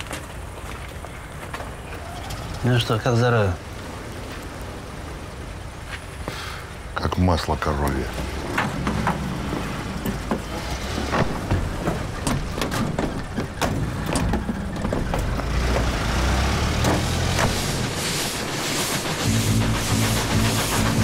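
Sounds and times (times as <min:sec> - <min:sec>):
rushing noise: 0:07.6 - 0:21.0
car doors and bodywork clunking: 0:08.1 - 0:18.0.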